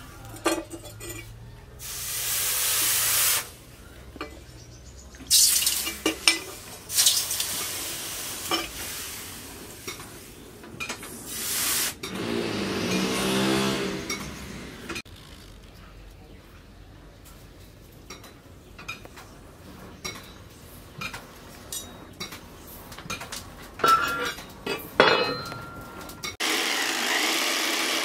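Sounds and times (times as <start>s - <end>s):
hot steel sizzling in water: 1.8s - 3.6s, 5.3s - 10.4s, 11.1s - 12.1s
metal clinks: 23.8s - 26.4s.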